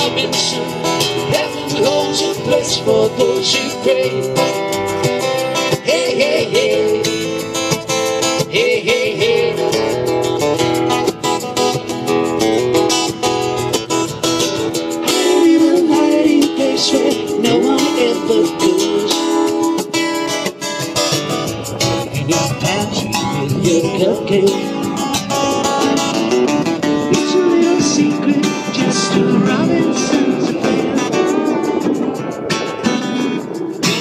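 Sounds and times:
man singing: 0.0s - 4.8s, 5.6s - 7.6s, 8.2s - 10.2s, 15.0s - 20.4s, 21.7s - 25.6s, 26.9s - 31.9s
acoustic guitars strummed: 0.0s - 34.0s.

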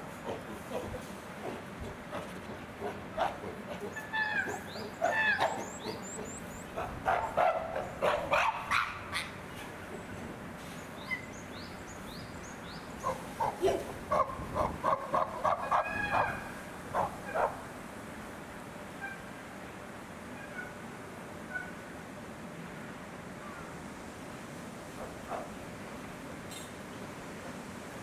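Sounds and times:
chimpanzees calling: 0.2s - 9.8s, 13.0s - 17.6s.

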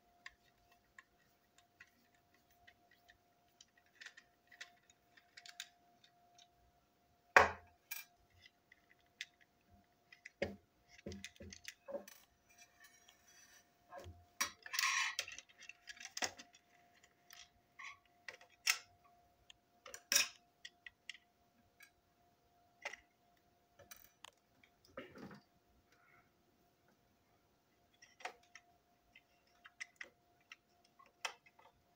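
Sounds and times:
faint steady hum: 0.0s - 31.9s
plastic toy parts clicking and knocking: 0.1s - 6.6s, 7.5s - 12.4s, 14.4s - 19.1s, 19.8s - 22.0s, 22.8s - 23.1s, 23.8s - 24.9s, 27.9s - 31.9s.

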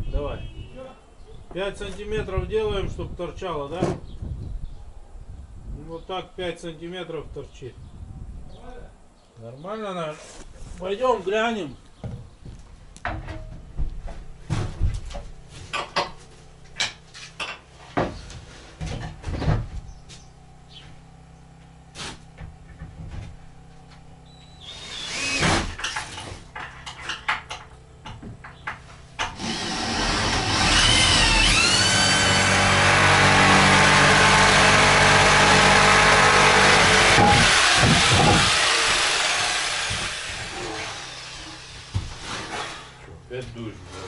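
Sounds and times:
tools knocking and clattering: 25.8s - 29.4s.

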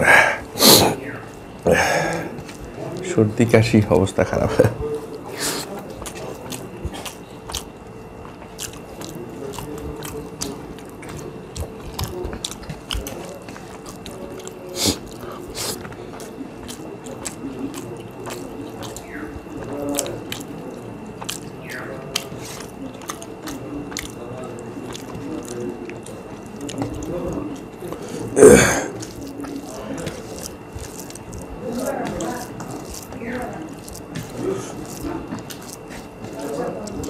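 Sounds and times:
faint steady hum: 0.0s - 37.0s
people chewing: 0.0s - 37.0s
wet squish of rice mixing: 0.0s - 37.0s.

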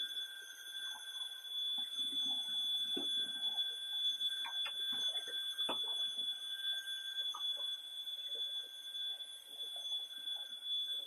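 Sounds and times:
vacuum cleaner motor whine: 0.0s - 11.0s.

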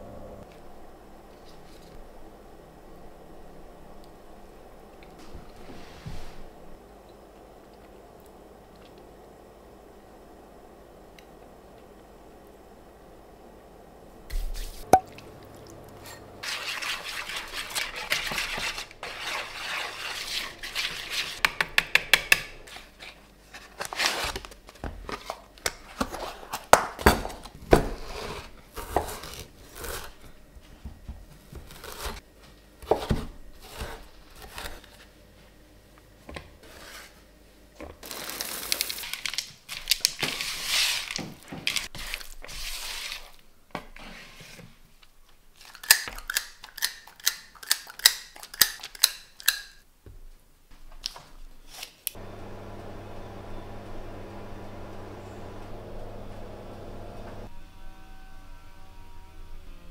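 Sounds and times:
spatula scraping dough in bowl: 16.1s - 21.4s.

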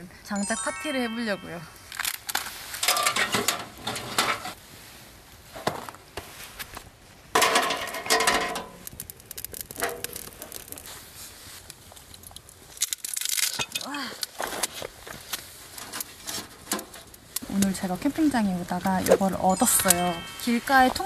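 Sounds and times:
firewood and metal clinking: 1.9s - 4.6s, 7.3s - 21.0s
wood fire crackling: 1.9s - 21.0s.

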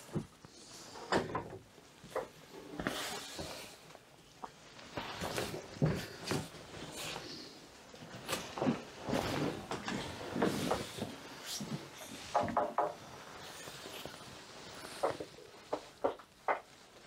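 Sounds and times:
wood creaking: 8.1s - 17.0s.

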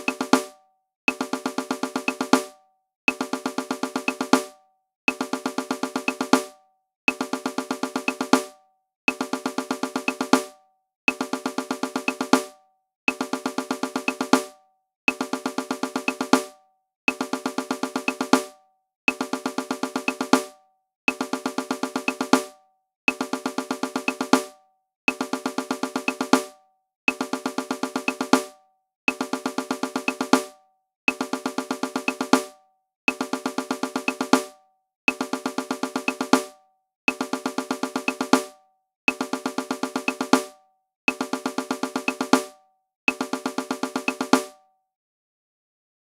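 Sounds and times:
snare drum rolls: 0.0s - 0.5s, 13.1s - 14.5s, 23.1s - 24.5s, 25.1s - 26.5s, 27.1s - 28.5s, 29.1s - 30.5s, 31.1s - 32.5s, 35.1s - 36.5s, 37.1s - 38.5s, 39.1s - 40.5s, 41.1s - 42.5s, 43.1s - 44.6s.

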